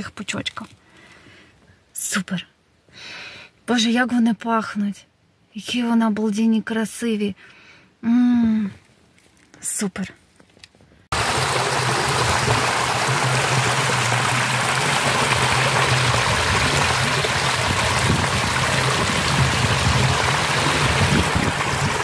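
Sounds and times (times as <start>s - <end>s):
water rushing over weir: 11.1s - 22.0s.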